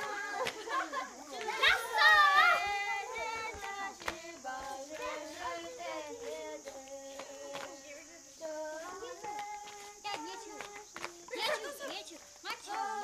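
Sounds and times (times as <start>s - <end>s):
children singing together: 0.0s - 13.0s
footsteps: 0.0s - 13.0s.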